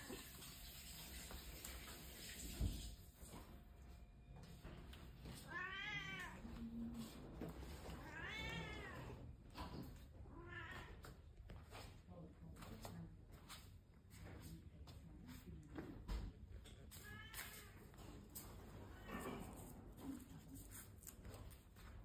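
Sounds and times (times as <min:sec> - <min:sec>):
cat meowing: 0:05.4 - 0:06.6, 0:07.9 - 0:09.2, 0:10.3 - 0:11.0, 0:17.0 - 0:17.9.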